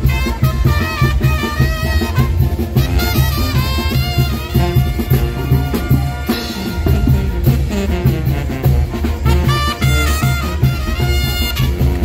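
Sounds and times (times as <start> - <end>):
brass band playing dance music: 0.0 - 12.0.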